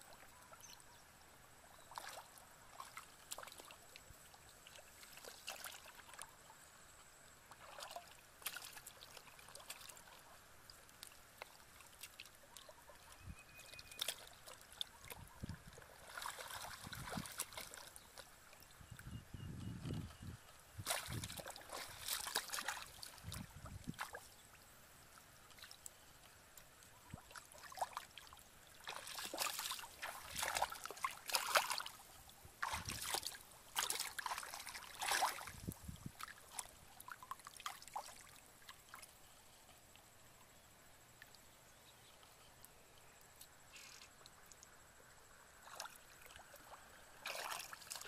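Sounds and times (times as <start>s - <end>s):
hands splashing in muddy water: 15.8s - 17.9s, 20.8s - 24.2s, 28.8s - 32.0s, 32.6s - 35.6s, 47.2s - 48.0s.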